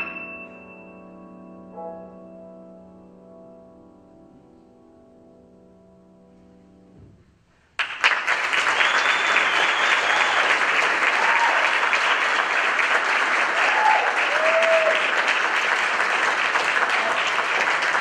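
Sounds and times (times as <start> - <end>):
grand piano chord ringing: 0.0 - 7.4
audience applauding: 7.8 - 18.0.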